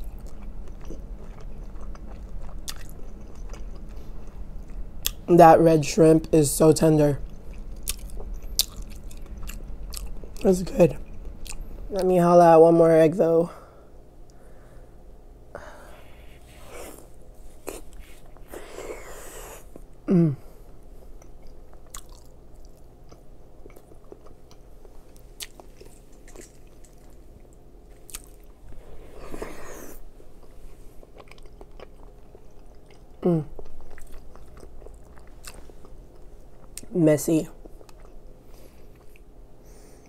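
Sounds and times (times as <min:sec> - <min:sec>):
biting and chewing food: 0:00.0 - 0:05.3, 0:07.2 - 0:11.9, 0:20.7 - 0:36.9
woman humming: 0:20.1 - 0:20.5, 0:33.2 - 0:33.5.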